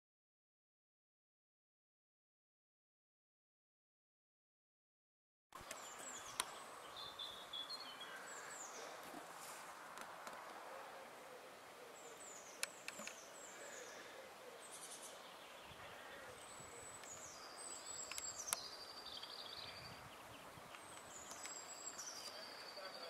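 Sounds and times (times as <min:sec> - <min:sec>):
outdoor hiss: 0:05.6 - 0:23.0
small birds chirping: 0:05.6 - 0:23.0
sharp clicks: 0:12.6 - 0:13.2, 0:18.0 - 0:18.6.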